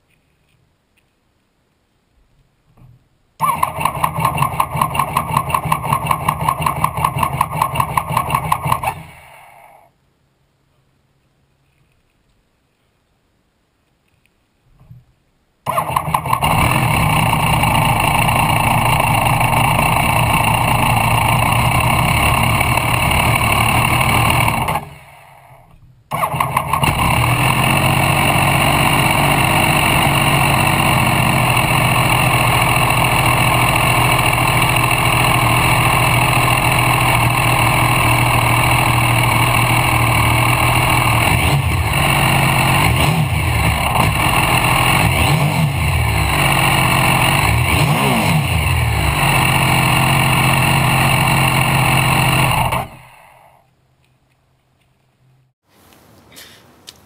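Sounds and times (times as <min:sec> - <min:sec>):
motorcycle engine running loudly: 0:03.4 - 0:09.3, 0:15.7 - 0:25.2, 0:26.1 - 0:53.2
engine revving: 0:03.4 - 0:09.9, 0:15.7 - 0:53.6.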